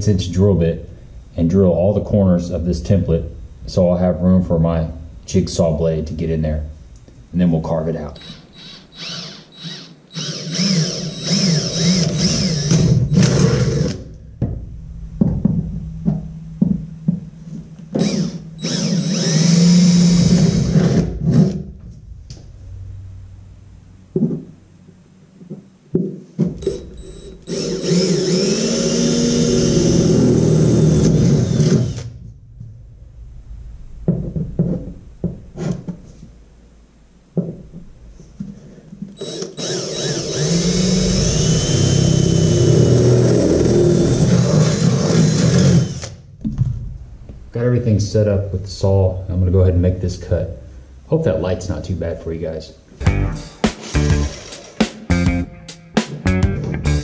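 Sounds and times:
drill boring through aluminium: 8.2s - 14.0s, 18.0s - 21.1s, 26.6s - 32.1s, 39.2s - 46.2s.

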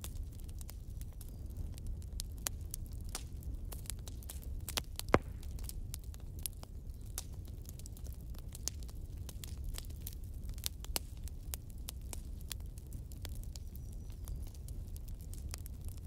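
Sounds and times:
faint irregular crackling: 0.0s - 16.0s
loud pop: 5.1s - 5.7s.

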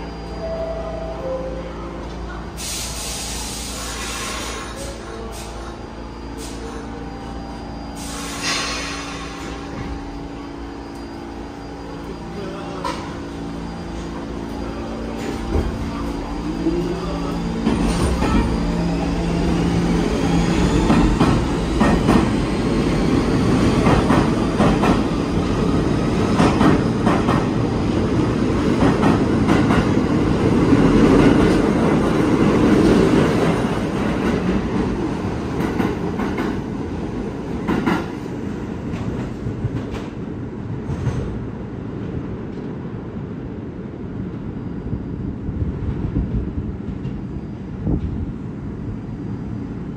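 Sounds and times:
air brake hiss: 2.5s - 5.7s, 6.4s - 7.0s, 8.0s - 9.6s.

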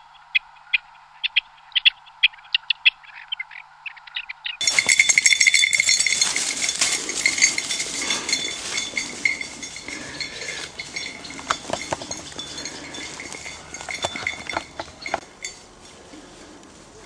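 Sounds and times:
small metal bells jingling: 4.6s - 16.0s.

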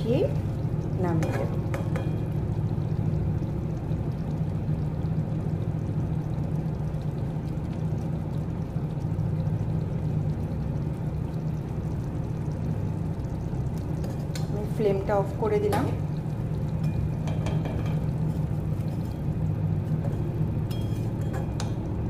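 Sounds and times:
gas stove rushing noise: 13.8s - 22.0s
spatula stirring in pan: 16.6s - 21.9s.

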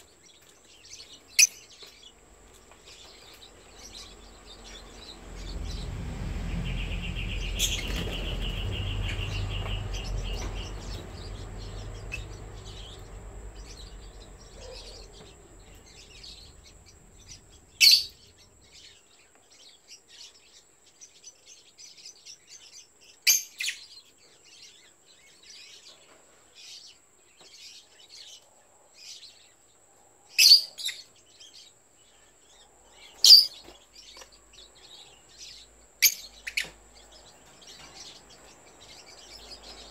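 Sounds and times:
lovebirds chirping: 0.0s - 39.9s
low rumble: 4.2s - 18.7s.

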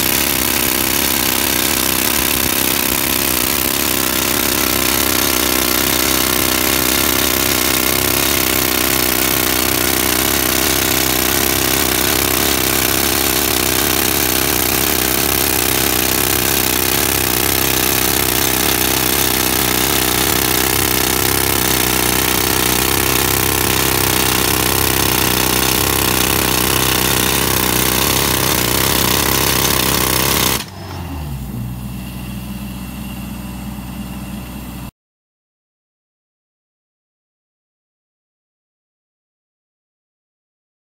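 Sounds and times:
rock drill hammering: 0.0s - 30.8s
diesel compressor droning: 3.0s - 34.9s.

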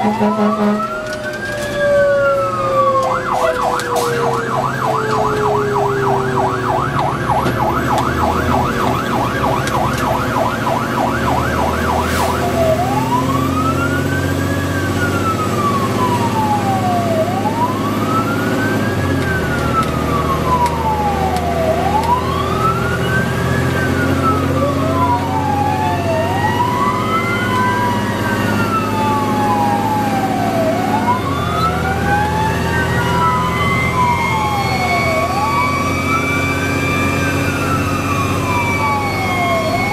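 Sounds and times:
fire engine siren: 0.0s - 39.9s
second wailing siren: 0.0s - 39.9s.

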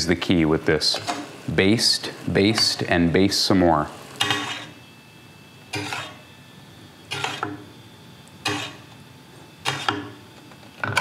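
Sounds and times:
metal spoon scraping a pan: 0.9s - 1.3s, 2.5s - 2.9s, 4.2s - 4.8s, 5.7s - 6.2s, 7.1s - 7.7s, 8.4s - 8.9s, 9.6s - 10.2s.

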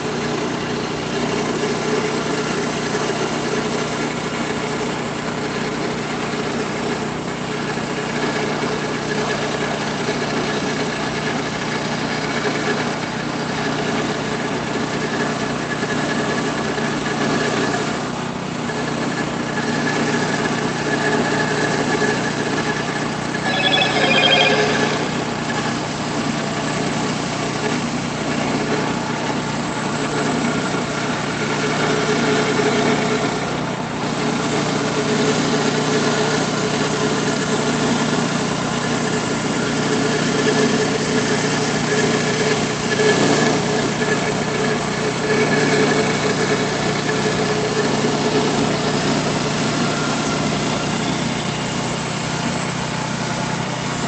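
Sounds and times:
sawmill gas engine running: 0.0s - 17.3s, 27.1s - 54.0s
shrill ringing: 23.4s - 25.7s.

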